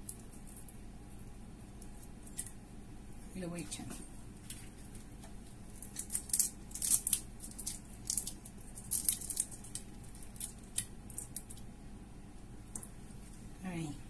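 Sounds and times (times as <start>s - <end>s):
shrimp shells crackling and snapping: 1.7s - 2.6s, 4.4s - 11.7s.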